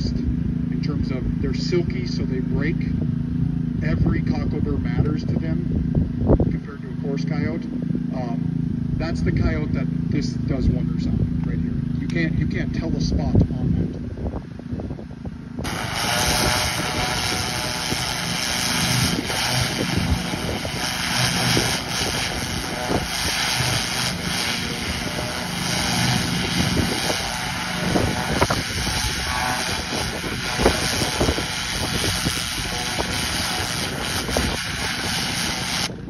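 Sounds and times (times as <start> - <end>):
pressure washer motor running: 0.0 - 36.0
water jet spray hissing: 15.6 - 36.0.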